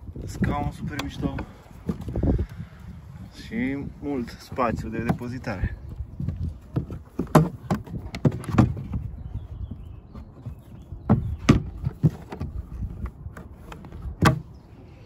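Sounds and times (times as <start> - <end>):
knocks and clunks: 4.4 - 14.6.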